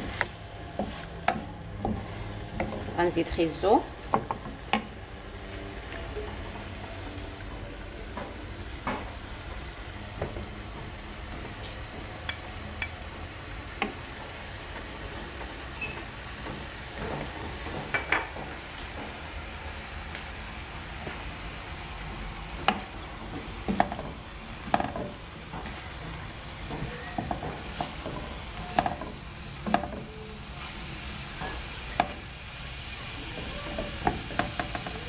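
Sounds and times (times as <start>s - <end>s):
wooden spatulas stirring: 0.0s - 5.0s, 22.6s - 35.0s
meat sizzling in a frying pan: 0.0s - 18.0s, 18.6s - 35.0s
wood knocking against pan: 0.8s - 3.0s, 4.1s - 5.0s, 16.4s - 19.2s, 22.6s - 25.8s, 26.6s - 30.1s, 31.4s - 32.3s, 33.4s - 35.0s.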